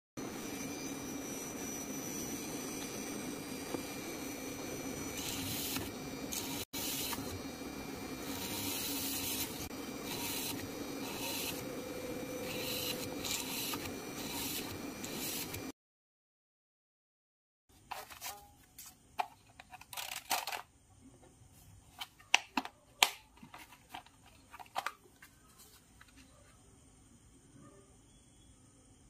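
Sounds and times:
drill bit hissing through board: 0:00.2 - 0:15.7
small drill humming: 0:00.2 - 0:15.7.

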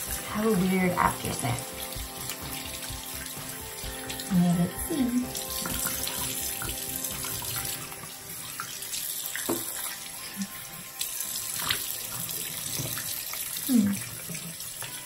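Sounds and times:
tap running into sink: 0:09.4 - 0:09.9.

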